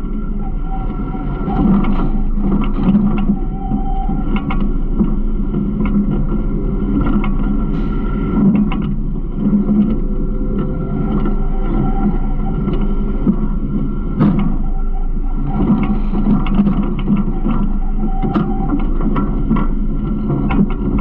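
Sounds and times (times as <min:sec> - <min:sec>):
rattles and clicks: 0:00.1 - 0:21.0
garbage truck engine hum: 0:04.2 - 0:21.0.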